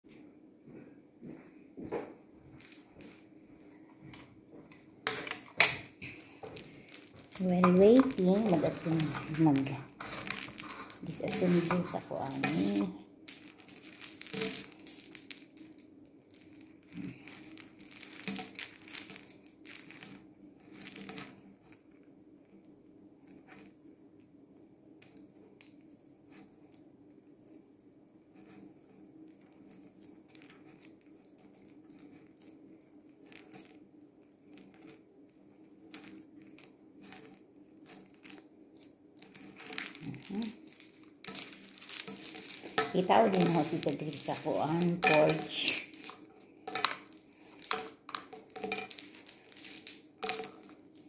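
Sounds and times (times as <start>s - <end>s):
fairy lights clicking and rustling: 4.0s - 22.1s, 28.3s - 51.0s.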